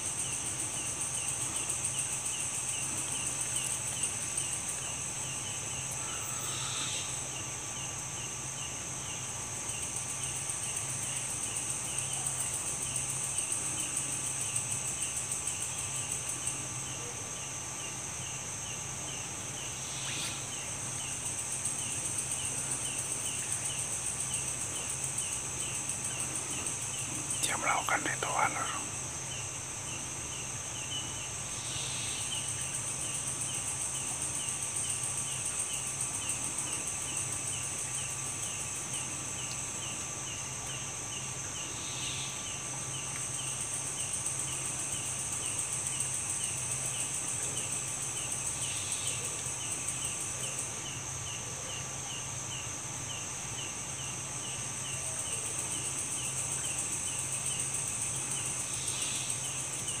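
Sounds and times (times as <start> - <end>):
high-pitched insect buzz: 0.0 - 7.4, 19.6 - 29.4
cricket chirping: 0.0 - 60.0.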